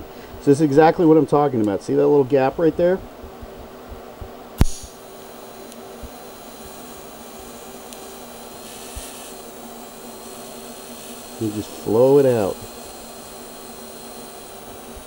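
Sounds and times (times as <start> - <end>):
welding arc hissing: 4.2 - 15.0
welding arc striking crack: 4.6 - 15.0.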